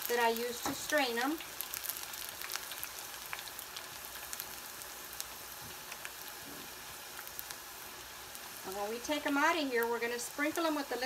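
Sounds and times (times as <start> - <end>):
small crackling pops: 0.0 - 6.4, 7.1 - 7.6
oil sizzling: 0.0 - 11.0.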